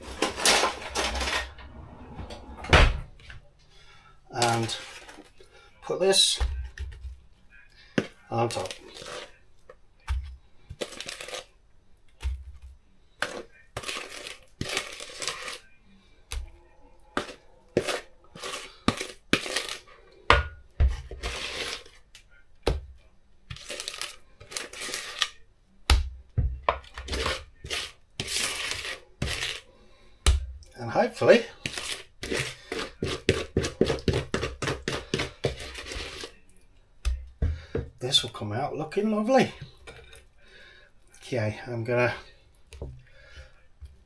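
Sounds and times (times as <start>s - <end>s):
spatula scraping plastic bowl: 0.0s - 3.5s, 4.3s - 7.1s, 7.9s - 9.4s, 10.1s - 11.6s, 13.2s - 15.7s, 16.3s - 20.2s, 20.8s - 22.1s, 23.5s - 25.4s, 26.7s - 36.4s.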